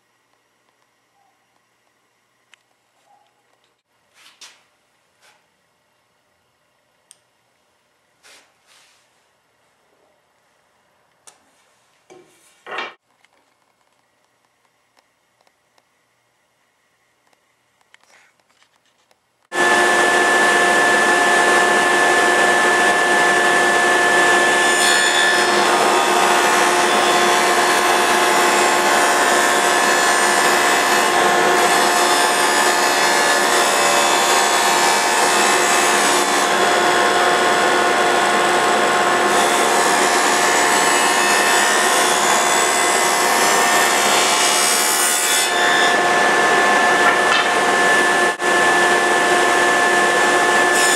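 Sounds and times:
power tool cutting wood: 19.5s - 50.9s.

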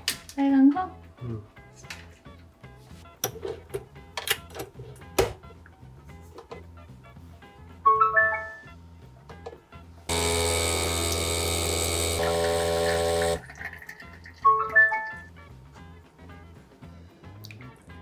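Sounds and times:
coffee machine pump humming: 10.1s - 13.7s
coffee running into glass: 10.8s - 14.8s.

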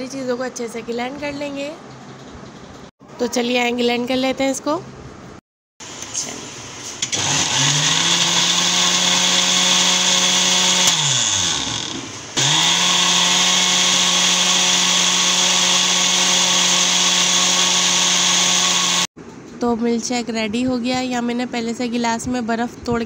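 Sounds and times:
electric blender motor whining: 7.0s - 19.2s.

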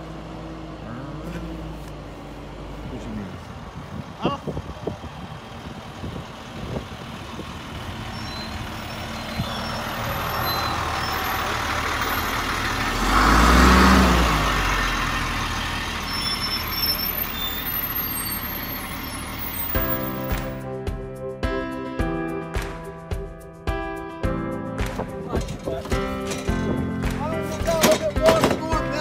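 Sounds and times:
truck engine running: 0.0s - 20.7s, 24.8s - 29.0s
scattered knocks: 24.9s - 28.9s.

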